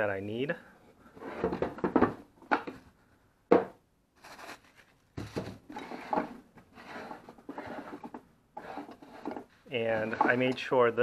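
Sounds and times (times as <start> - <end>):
rustling of handled objects: 4.1 - 10.7.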